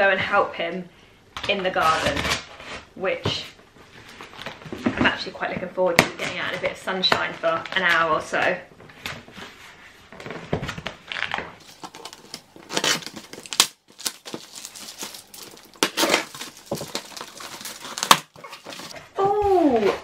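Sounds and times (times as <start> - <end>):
cardboard flaps crinkling: 8.9 - 20.0.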